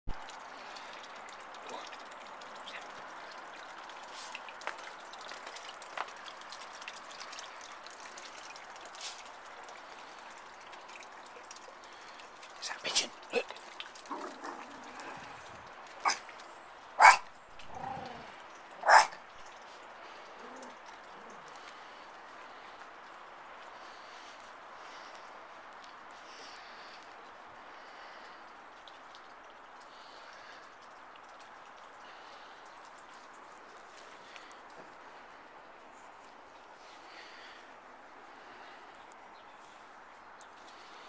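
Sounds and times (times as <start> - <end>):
water trickling: 0.1 - 41.0
soft drawn-out dog sound: 13.0 - 16.3, 17.0 - 19.5, 20.2 - 21.7
small dog barking: 16.0 - 16.2, 17.0 - 18.0, 18.8 - 19.2.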